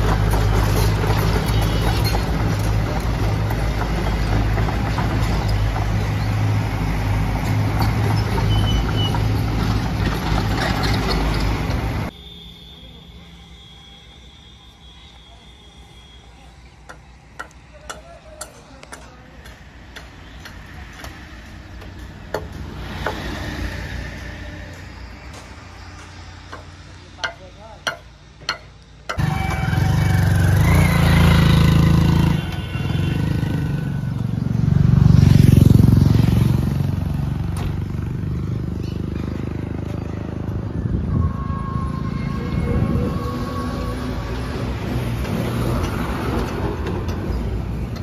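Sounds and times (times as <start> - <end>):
excavator diesel engine running: 0.0 - 12.2.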